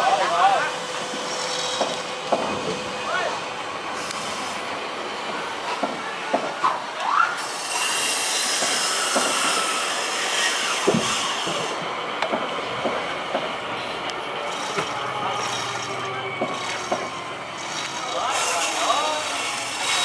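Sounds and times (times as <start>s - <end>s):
steady grinding hiss: 0.0s - 5.9s, 7.4s - 20.0s
metal rails squealing: 0.0s - 20.0s.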